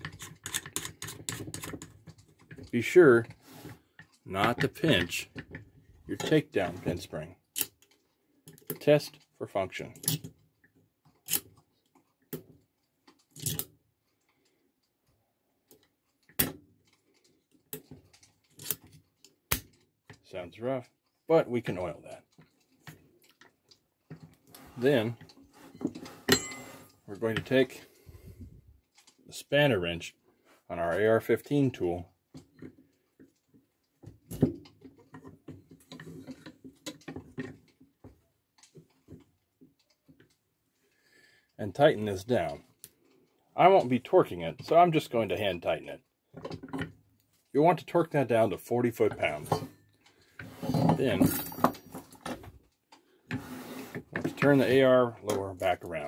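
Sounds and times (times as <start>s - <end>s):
metal pin scraping: 0.0s - 2.7s
wrench clicking and knocking on metal: 0.0s - 2.7s.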